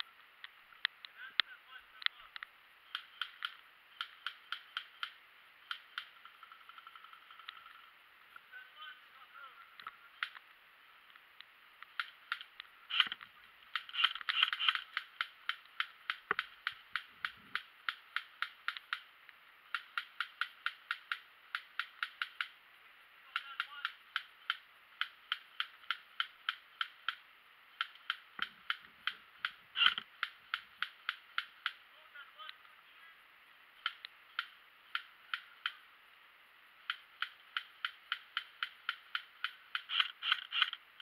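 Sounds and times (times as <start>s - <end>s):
airsoft gun shots: 12.3s - 18.8s.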